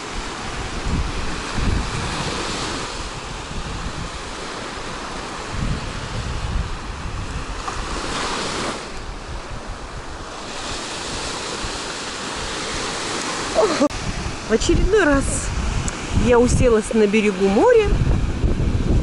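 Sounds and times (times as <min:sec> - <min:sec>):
small waves breaking on shore: 0:00.0 - 0:19.0
wind gusting on microphone: 0:00.0 - 0:19.0.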